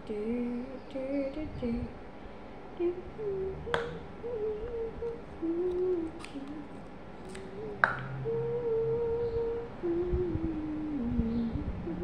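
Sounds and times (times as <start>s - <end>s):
child humming: 2.8s - 6.8s, 7.4s - 12.0s.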